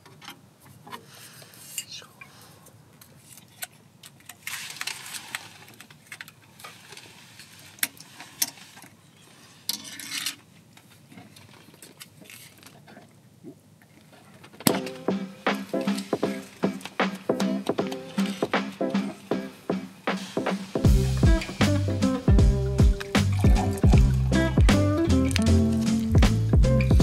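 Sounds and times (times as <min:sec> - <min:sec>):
foil crinkling on bottle: 0:04.3 - 0:09.6
music: 0:14.7 - 0:27.0.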